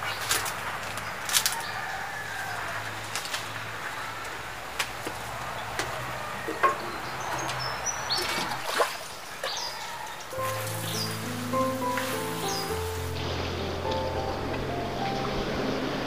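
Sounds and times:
metal watering can knocks: 6.5s - 7.0s.

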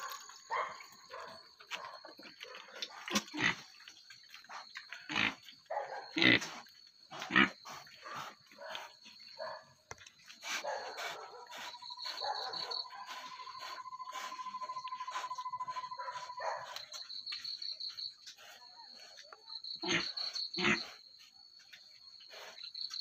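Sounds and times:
crickets chirping: 0.0s - 23.0s
pig grunting: 3.0s - 3.7s, 5.0s - 5.5s, 6.1s - 8.4s, 19.8s - 21.0s
pulsing insect trill: 11.2s - 18.2s.

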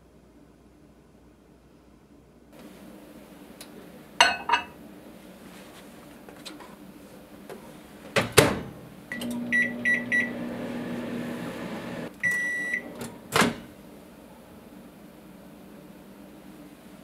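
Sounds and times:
microwave door shutting: 8.2s - 13.7s
microwave humming: 8.5s - 13.8s
long end-of-cycle beep: 9.1s - 10.5s, 12.2s - 12.9s
keypad beeps: 12.2s - 12.8s.

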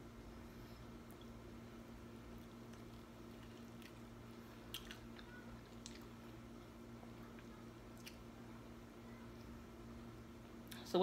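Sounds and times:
chewing with mouth clicks: 2.3s - 6.7s, 7.3s - 8.3s.

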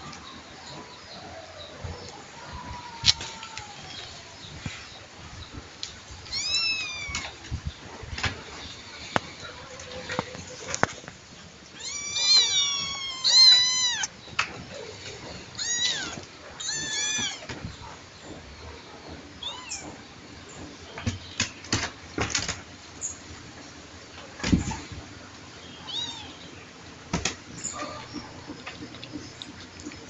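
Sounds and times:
kitten meowing: 6.3s - 7.3s, 11.8s - 14.1s, 15.6s - 17.5s.

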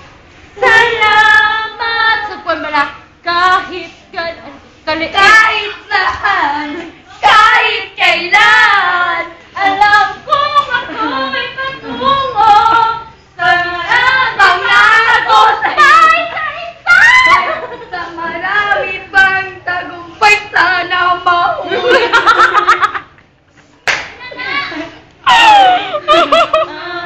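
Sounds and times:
girl singing unaccompanied: 0.6s - 16.9s, 17.6s - 21.8s.

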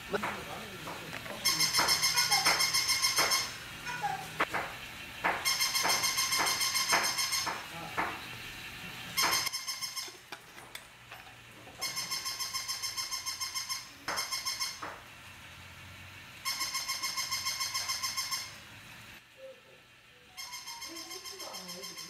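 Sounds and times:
toy stuttering electronic tone: 1.4s - 3.6s, 5.5s - 7.5s, 9.2s - 10.2s, 11.8s - 14.8s, 16.4s - 18.6s, 20.3s - 22.0s.

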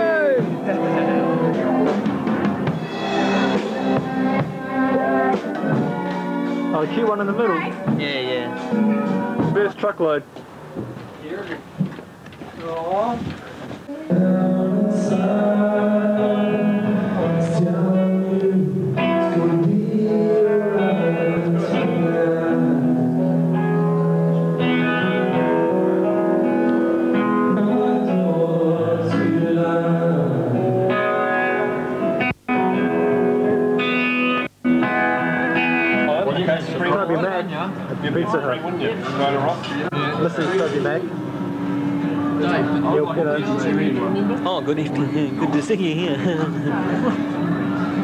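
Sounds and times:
guitar: 0.0s - 48.0s
person singing: 13.9s - 24.1s, 24.8s - 31.3s.

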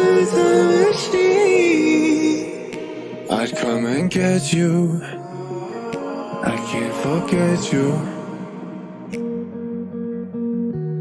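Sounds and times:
pop song with sliding held note: 0.0s - 11.0s.

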